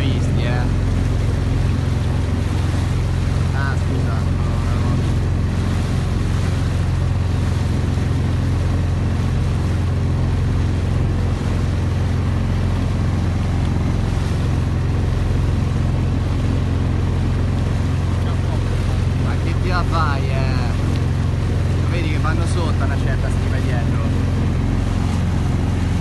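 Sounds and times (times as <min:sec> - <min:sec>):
boat engine droning: 0:00.0 - 0:26.0
water rushing: 0:00.0 - 0:26.0.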